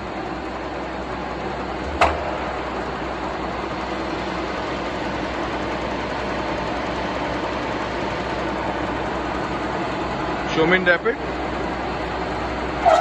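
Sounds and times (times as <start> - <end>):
milling machine feed drive humming: 0.0 - 12.9.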